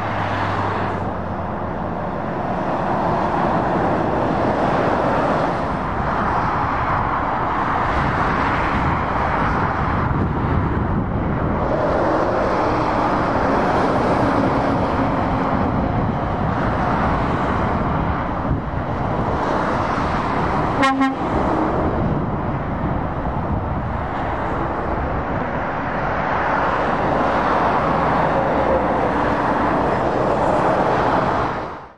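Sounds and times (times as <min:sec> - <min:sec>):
vehicles passing at speed: 0:00.0 - 0:31.9
vehicle horn toot: 0:20.8 - 0:21.3.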